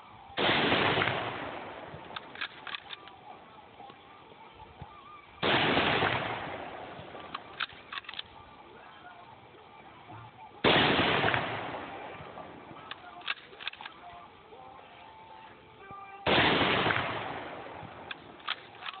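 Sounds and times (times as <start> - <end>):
rifle shots: 0.4 - 3.2, 5.4 - 8.4, 10.6 - 14.0, 16.2 - 19.0
rifle bolt clicking: 2.1 - 3.2, 7.2 - 8.3, 12.8 - 14.2, 18.0 - 19.0.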